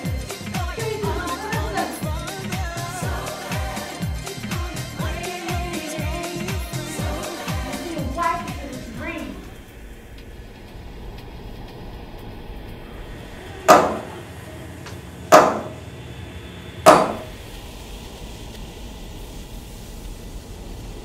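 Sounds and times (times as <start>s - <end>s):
hammer blows on wood: 13.7s - 14.2s, 15.3s - 15.8s, 16.9s - 17.4s.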